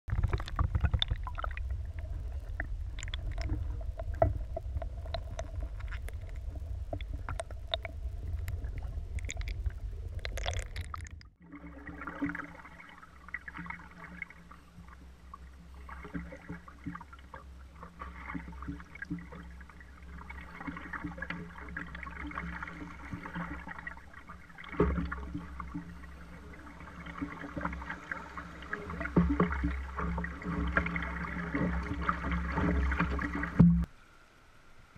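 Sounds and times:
muffled underwater churn: 0.0s - 34.9s
water rushing past hull: 0.1s - 34.2s
paddle splashes: 10.3s - 33.9s.

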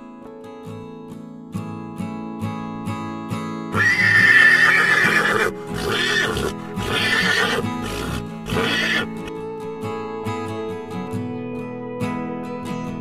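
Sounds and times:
guitar music: 0.0s - 13.0s
horse whinnying: 3.7s - 9.3s.

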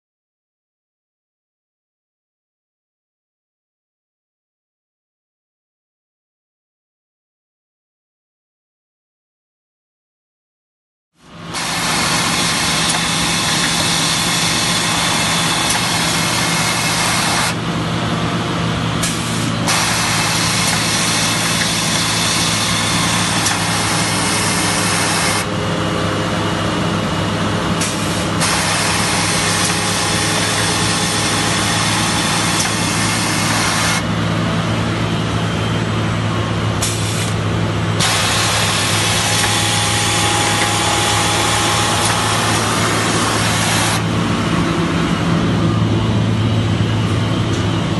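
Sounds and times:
machine mechanical hum: 11.2s - 47.9s
high machine whir: 11.3s - 47.9s.

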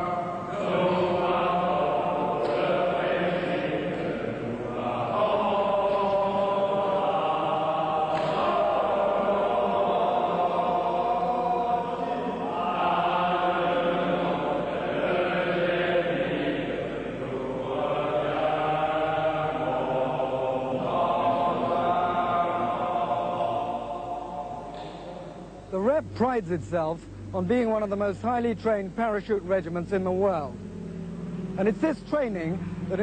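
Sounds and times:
men singing chant-like song: 0.0s - 25.2s.

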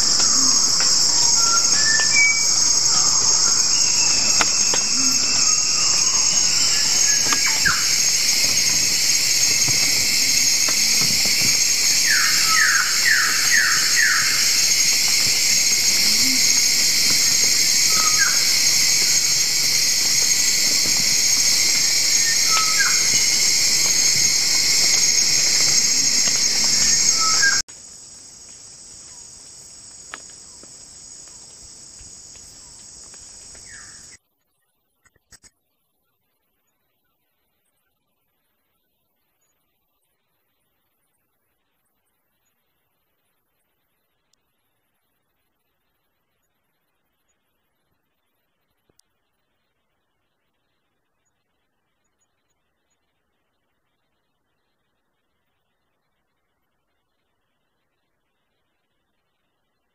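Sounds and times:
high-pitched insect chorus: 0.0s - 34.2s
hiss: 0.0s - 34.2s.

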